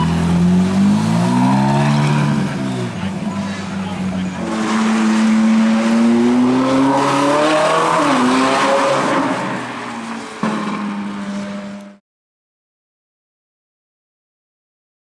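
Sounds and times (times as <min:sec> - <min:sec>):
car engine accelerating past: 0:00.0 - 0:03.1, 0:04.0 - 0:11.9.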